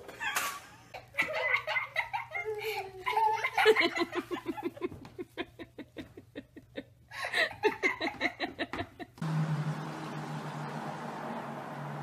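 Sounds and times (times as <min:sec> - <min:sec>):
person laughing hard: 0:00.2 - 0:09.2.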